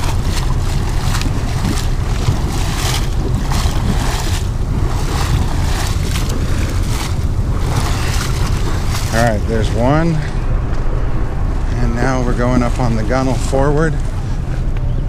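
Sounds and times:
boat engines rumbling: 0.0s - 15.0s
water churning along hull: 0.0s - 15.0s
wind buffeting microphone: 0.0s - 15.0s.

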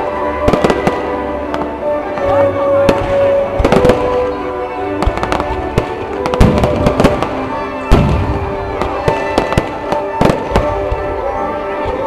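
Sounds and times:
fireworks bangs and crackles: 0.0s - 12.0s
music playing: 0.0s - 12.0s.

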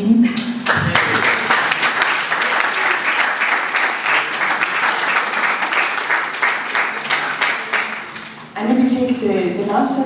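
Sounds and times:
audience applauding: 0.6s - 8.5s.

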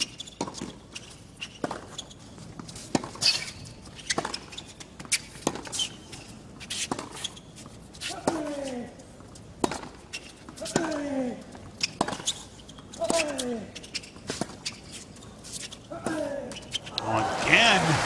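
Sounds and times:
rackets striking tennis ball: 1.5s - 6.0s, 9.6s - 11.2s, 11.8s - 14.8s
ball bouncing on hard court: 9.6s - 10.0s
player grunting: 17.0s - 18.0s.

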